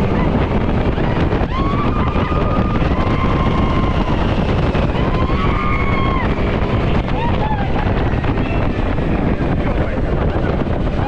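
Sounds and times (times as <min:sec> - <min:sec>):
ride vehicle rumble: 0:00.0 - 0:11.0
wind buffeting microphone: 0:00.0 - 0:11.0.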